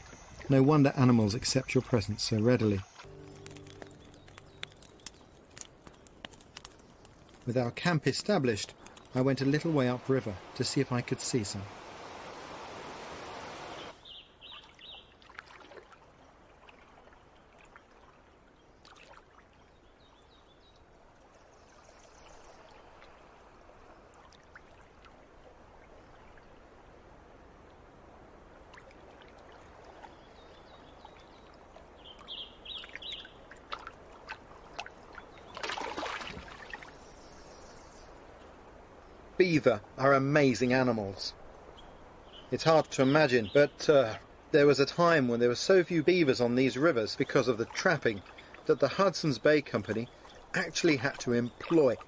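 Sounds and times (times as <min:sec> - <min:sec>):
bird chirps: 0:01.3 - 0:06.1
river rapids rushing: 0:09.6 - 0:13.9
paddle dipping in water: 0:11.7 - 0:19.7, 0:20.9 - 0:26.6, 0:28.6 - 0:37.2, 0:47.1 - 0:52.0
water splash: 0:33.5 - 0:37.0.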